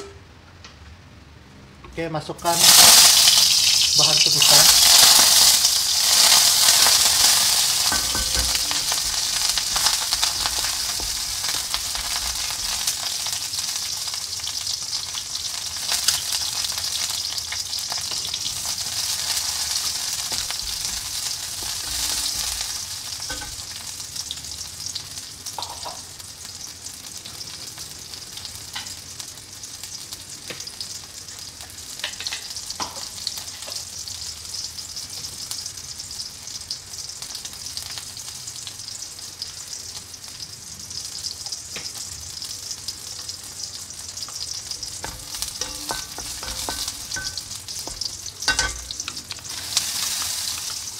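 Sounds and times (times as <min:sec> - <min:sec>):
aromatics sizzling in hot oil: 0:02.4 - 0:50.9
spatula stirring and knocking wok: 0:04.4 - 0:13.1, 0:44.3 - 0:50.9.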